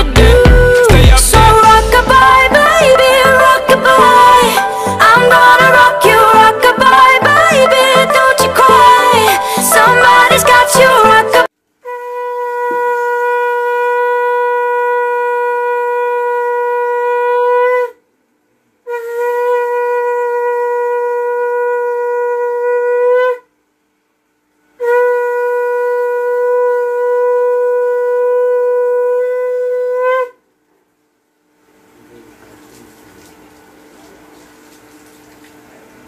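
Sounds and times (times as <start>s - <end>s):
conch shell blasts: 1.5s - 5.8s, 11.8s - 18.0s, 18.9s - 23.4s, 24.8s - 30.4s.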